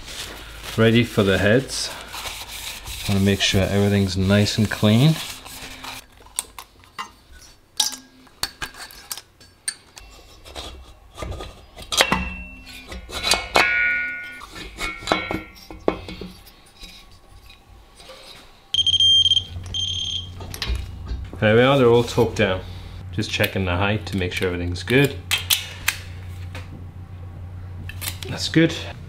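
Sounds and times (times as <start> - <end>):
torque wrench beeping: 18.8 - 20.4.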